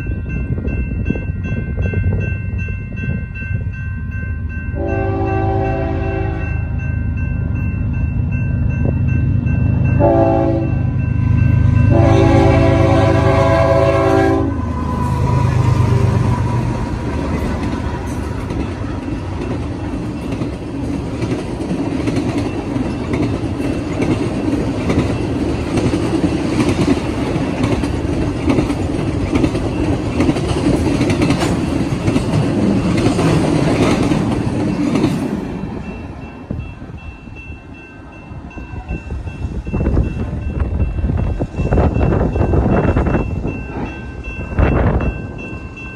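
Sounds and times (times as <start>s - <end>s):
train horn blasts: 4.8s - 6.7s, 10.0s - 11.0s, 11.8s - 16.8s
locomotive rumble: 7.4s - 45.9s
train wheels clicking over rail joints: 14.9s - 35.9s.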